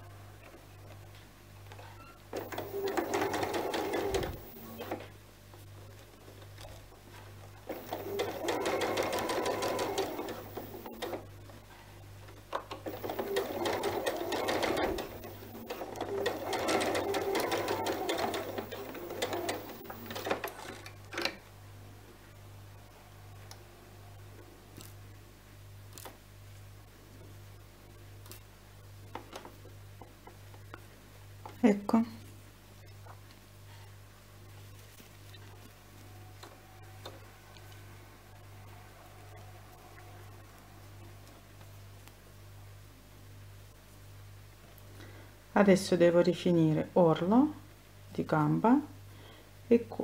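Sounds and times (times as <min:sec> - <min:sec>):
electric sewing machine stitching: 0:02.3 - 0:05.0, 0:07.7 - 0:11.2, 0:12.8 - 0:20.7.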